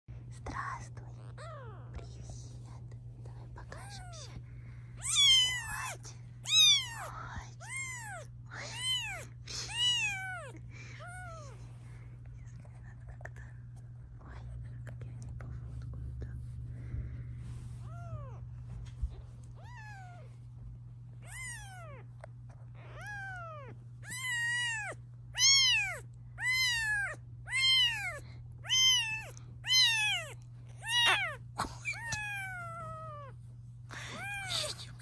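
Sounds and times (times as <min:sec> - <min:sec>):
kitten meowing: 0:01.2 - 0:02.0, 0:03.7 - 0:04.3, 0:05.0 - 0:11.6, 0:17.8 - 0:18.5, 0:19.5 - 0:20.4, 0:21.2 - 0:22.1, 0:22.8 - 0:33.4, 0:34.0 - 0:35.0.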